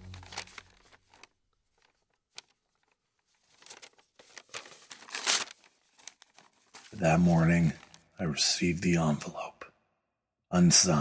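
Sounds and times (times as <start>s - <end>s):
paper rustling and crinkling: 0.0s - 8.1s.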